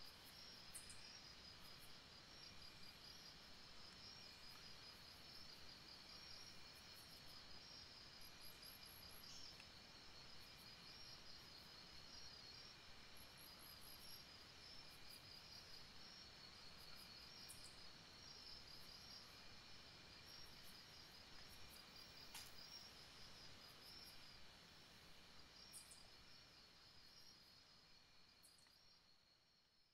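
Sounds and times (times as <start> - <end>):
faint background hiss: 0.0 - 29.9
faint click: 22.2 - 22.6.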